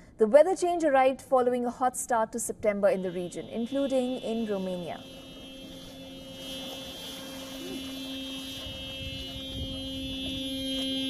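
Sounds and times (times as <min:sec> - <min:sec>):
low steady hum: 0:00.0 - 0:11.0
faint high steady tones: 0:02.9 - 0:11.0.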